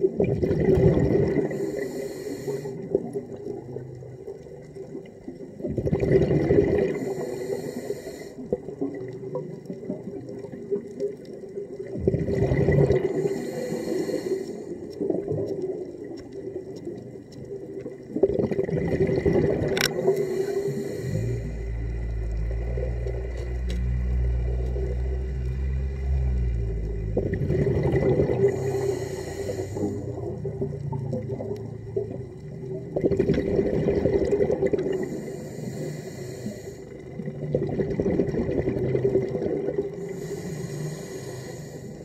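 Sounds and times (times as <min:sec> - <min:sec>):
regulator bubbling: 0:00.0 - 0:01.7, 0:02.8 - 0:07.2, 0:08.4 - 0:13.7, 0:14.7 - 0:35.6, 0:36.9 - 0:40.5
regulator breath hiss: 0:01.5 - 0:03.0, 0:06.9 - 0:08.5, 0:13.1 - 0:14.8, 0:19.9 - 0:23.2, 0:28.4 - 0:30.4, 0:34.9 - 0:37.1, 0:40.0 - 0:42.0.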